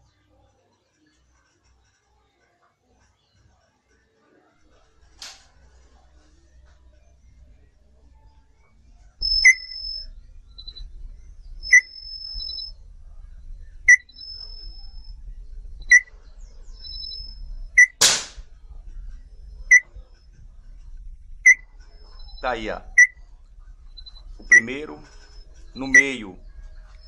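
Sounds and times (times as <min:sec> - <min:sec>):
sharp chirp: 0:04.7 - 0:27.0
thin high whistle: 0:04.7 - 0:27.0
air rifle firing: 0:17.8 - 0:18.6.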